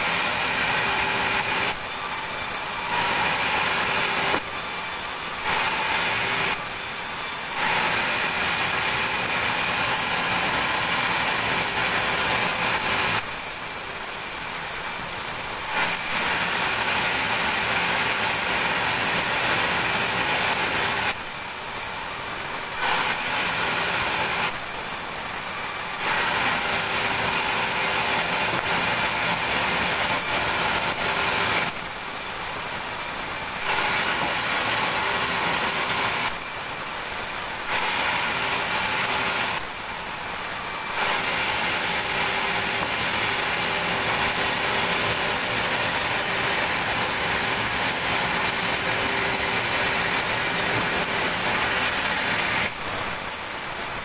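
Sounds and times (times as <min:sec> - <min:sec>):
band saw cutting wood: 0:00.0 - 0:54.0.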